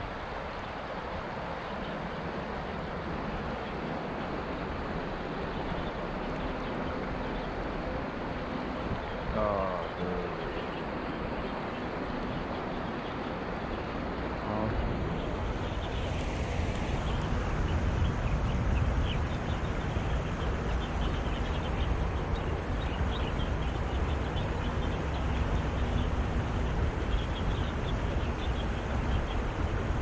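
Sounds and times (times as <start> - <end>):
wind buffeting microphone: 10.8 - 30.0.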